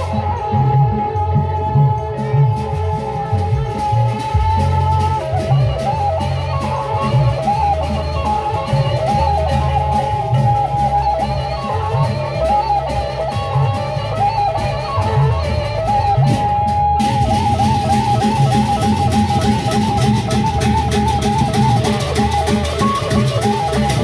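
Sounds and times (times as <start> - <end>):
bamboo flute melody: 0.0 - 24.0
large drums beating: 13.1 - 24.0.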